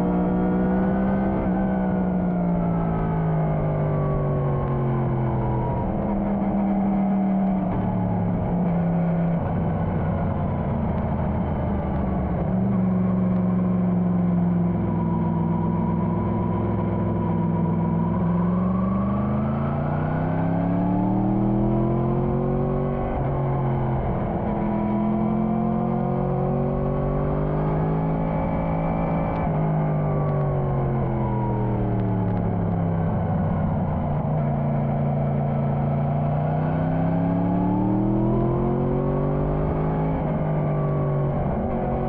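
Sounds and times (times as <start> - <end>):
motorcycle engine accelerating: 0.0 - 42.0.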